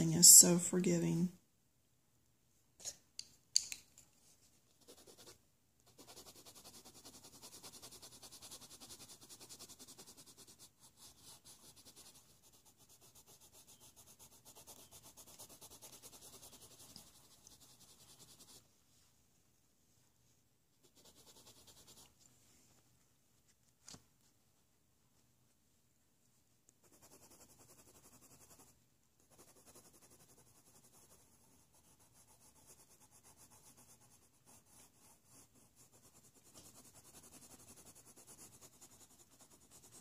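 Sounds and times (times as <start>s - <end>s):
pencil scratching on paper: 4.8s - 18.6s, 20.8s - 22.2s, 26.8s - 40.0s.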